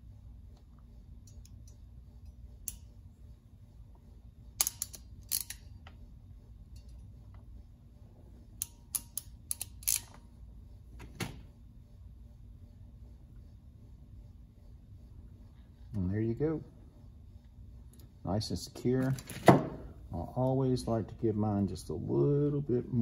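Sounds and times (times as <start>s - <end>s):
crimping pliers clicking: 4.6s - 5.6s, 8.6s - 10.2s.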